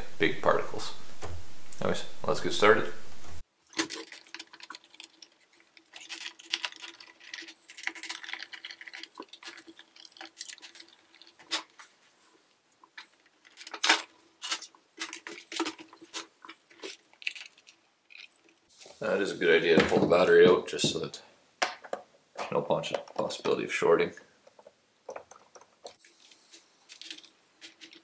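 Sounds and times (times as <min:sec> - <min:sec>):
screws and plastic rattling: 0:03.7 - 0:11.9, 0:12.8 - 0:18.7, 0:24.4 - 0:28.0.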